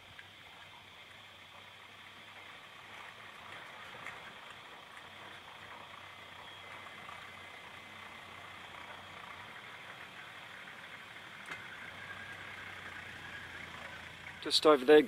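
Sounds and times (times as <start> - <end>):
distant diesel engine running: 0.0 - 15.0.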